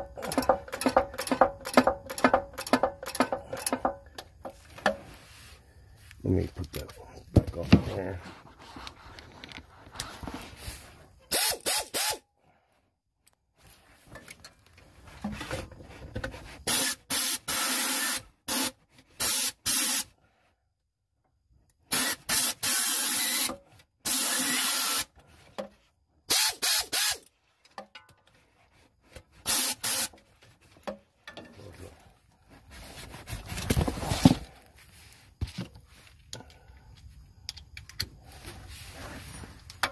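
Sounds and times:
pneumatic air tool bursts: 11.3 - 12.2, 16.6 - 20.1, 21.8 - 25.2, 26.3 - 27.3, 29.4 - 30.2.

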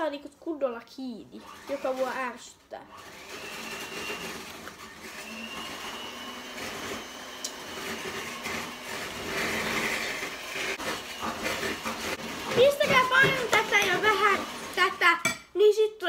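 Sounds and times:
electric motor whirring: 2.9 - 12.5.

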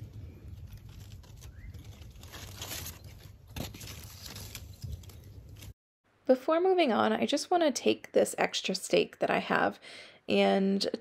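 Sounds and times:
plant leaves rustling: 0.0 - 5.8.

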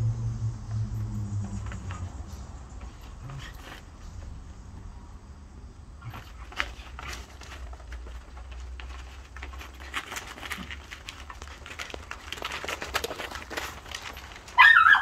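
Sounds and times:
steady low rumble: 0.0 - 3.4
paws scuffling and pattering: 1.4 - 4.5, 6.0 - 15.0.

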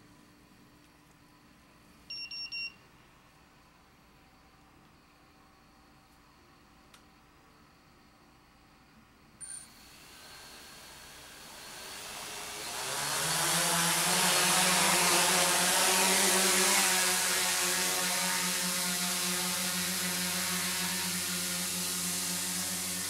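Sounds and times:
drone propellers buzzing: 10.2 - 23.0.

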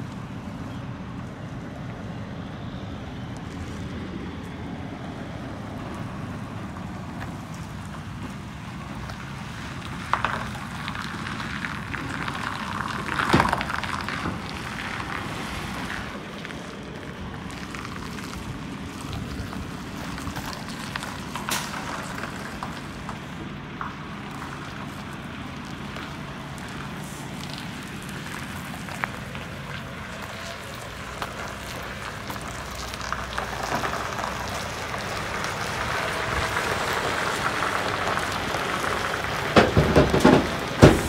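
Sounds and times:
diesel truck engine at low revs: 0.0 - 41.0
gritty crackling noise: 3.0 - 41.0
loud thumps: 39.6 - 41.0.

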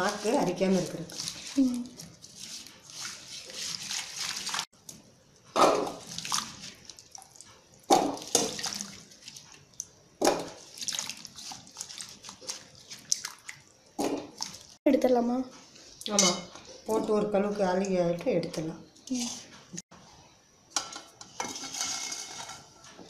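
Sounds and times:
water sloshing in steel bowl: 0.0 - 4.7, 5.6 - 14.8
water splashes: 5.8 - 9.4, 10.3 - 14.8.

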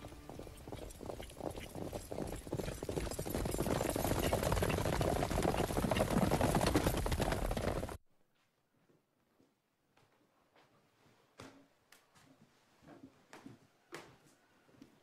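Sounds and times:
horses' hooves galloping: 0.0 - 8.0.

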